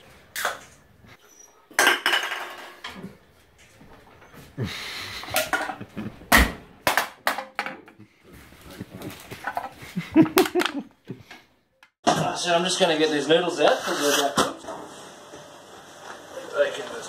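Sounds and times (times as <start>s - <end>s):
can clattering on tiled floor: 1.8s - 3.0s, 5.3s - 8.0s.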